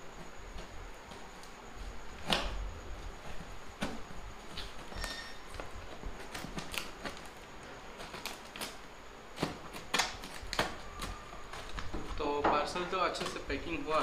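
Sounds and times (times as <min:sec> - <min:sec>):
tool slitting packing tape: 0:08.0 - 0:11.8.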